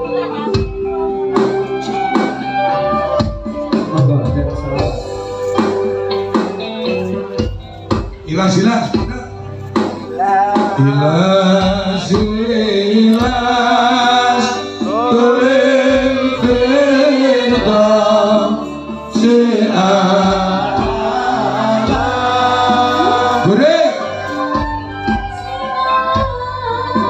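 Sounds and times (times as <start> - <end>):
drum strokes: 7.4 - 25.6
person singing through a pa: 10.1 - 27.0.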